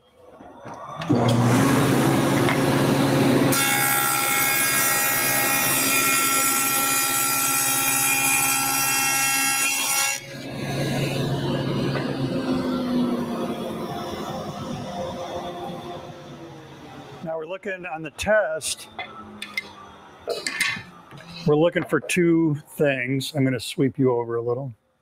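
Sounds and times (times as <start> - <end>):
table saw running: 1.0 - 17.1
saw cutting board whine: 1.0 - 17.2.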